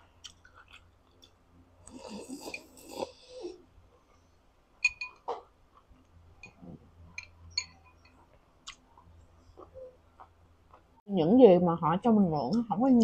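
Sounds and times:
soft chewing: 0.0 - 4.4, 5.2 - 11.0.

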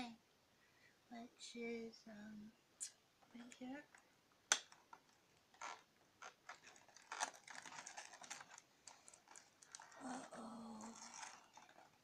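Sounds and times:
cardboard scratching and crinkling: 5.6 - 10.1, 10.8 - 12.0.

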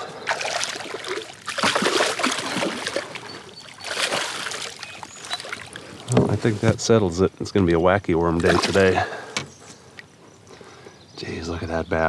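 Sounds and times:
fish splashing in water: 0.0 - 6.1, 8.4 - 9.0.

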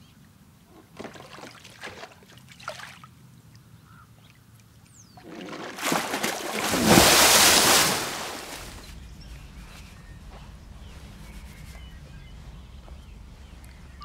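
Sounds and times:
large water splash: 5.2 - 14.0.

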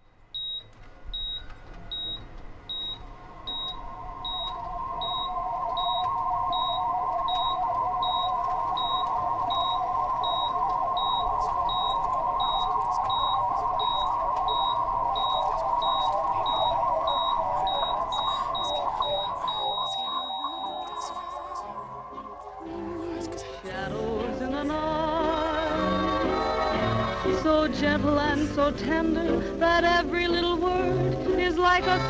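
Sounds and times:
short high electronic beeps: 0.4 - 21.6
hissing drone: 2.4 - 32.0.

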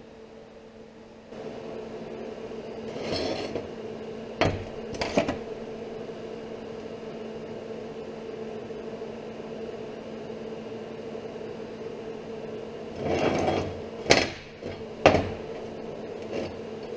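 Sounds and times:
steady low hum: 0.0 - 16.9
metal scraping on workbench: 2.8 - 3.8, 4.4 - 5.5, 12.9 - 16.9.

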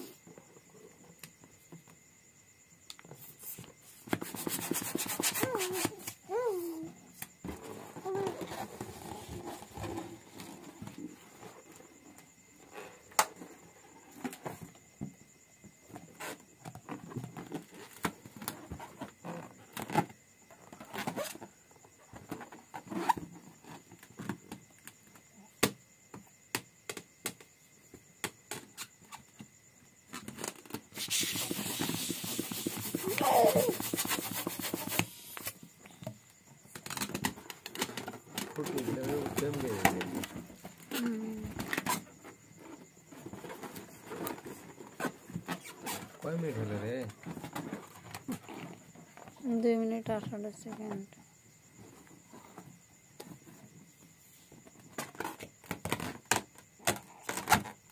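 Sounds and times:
balloons squeaking when rubbed: 3.3 - 6.9, 7.6 - 10.5, 20.8 - 21.4, 22.3 - 23.2, 30.6 - 35.6
rustling: 30.1 - 36.0.

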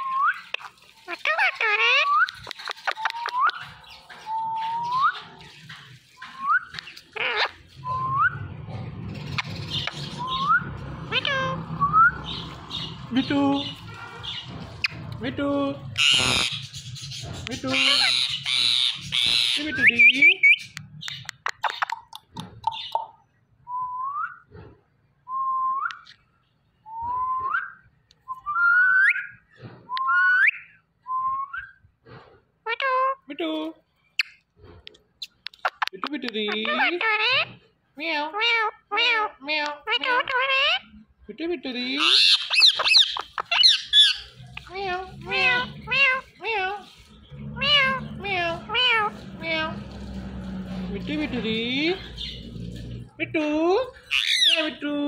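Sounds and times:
parrot squawk: 1.1 - 3.7, 7.0 - 7.6, 9.4 - 13.0, 15.9 - 23.0, 36.6 - 40.9, 42.0 - 50.2, 53.9 - 54.8
parrot whistling: 42.1 - 46.5.

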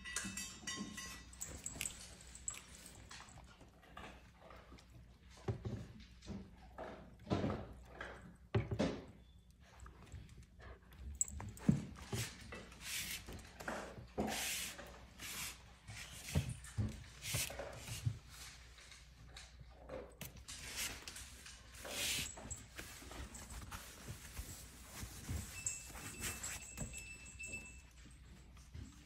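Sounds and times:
dogs scuffing on tiled floor: 11.1 - 29.0.

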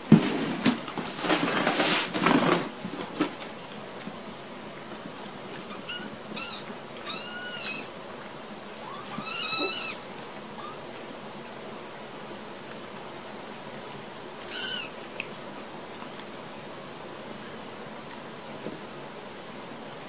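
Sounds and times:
kittens mewing: 5.7 - 7.9, 8.8 - 10.0, 14.4 - 15.0.

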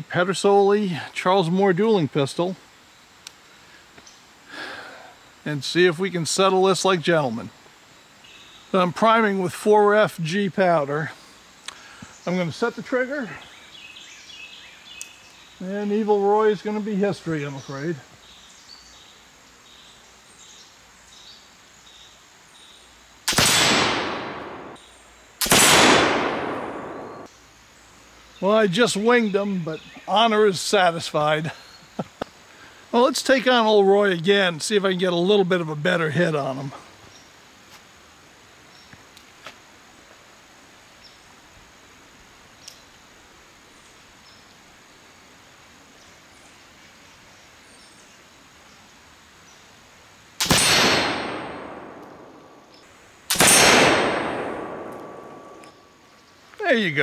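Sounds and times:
background hiss: 0.0 - 57.0
pistol shots with echo: 23.3 - 24.8, 25.4 - 27.3, 50.4 - 52.6, 53.3 - 55.6.

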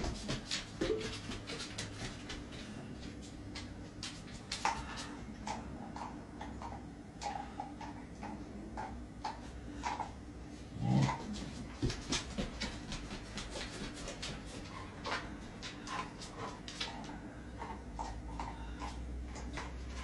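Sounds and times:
dog claws clicking on floor: 3.0 - 6.8, 11.8 - 20.0.

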